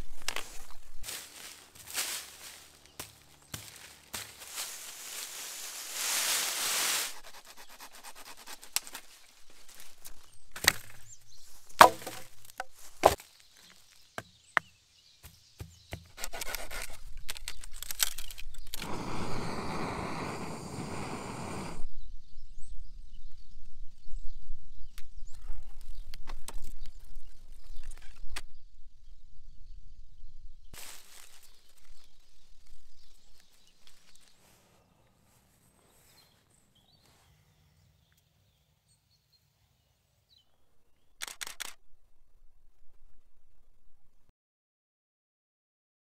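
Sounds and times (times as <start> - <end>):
sharp knocks and cracks on wood: 3.0 - 4.4, 10.5 - 11.1, 11.8 - 18.4
rough scraping on wood: 16.2 - 21.8.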